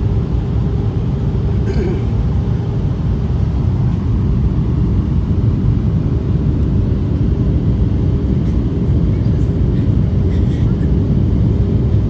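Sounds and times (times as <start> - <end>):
airliner cabin rumble: 0.0 - 12.0.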